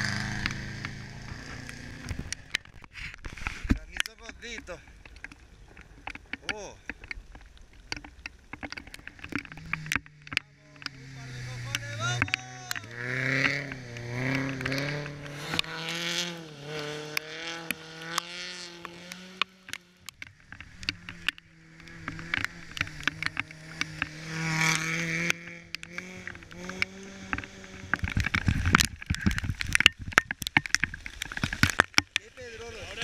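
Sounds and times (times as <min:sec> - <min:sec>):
rally car engine revving: 0:00.0 - 0:02.8, 0:08.9 - 0:29.4
second rally car passing: 0:10.6 - 0:19.1.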